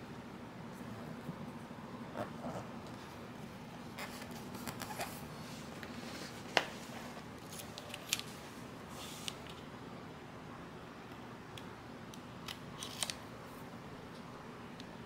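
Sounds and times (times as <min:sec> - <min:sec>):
vinyl sheet rustling and crinkling: 0:04.0 - 0:09.5.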